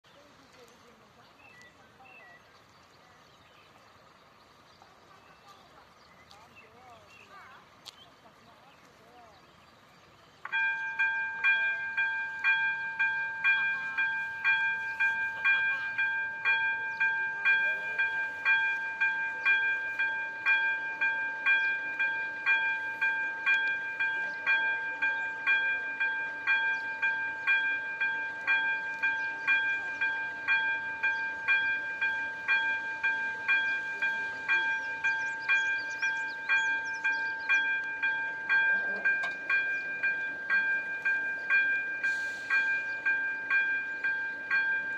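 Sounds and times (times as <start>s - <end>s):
level-crossing warning bell ringing: 10.4s - 44.9s.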